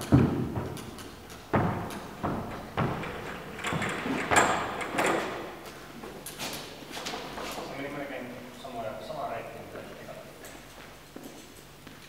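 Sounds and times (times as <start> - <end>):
feet thumping on climbing wall: 0.0 - 5.6.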